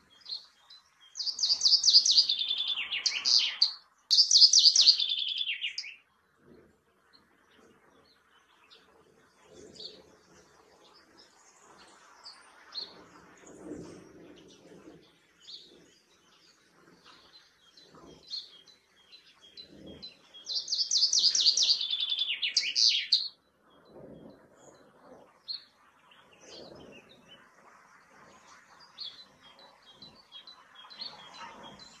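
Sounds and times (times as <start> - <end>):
chaffinch singing: 0.0 - 6.0, 17.2 - 23.4
faint bird chirps: 0.0 - 32.0.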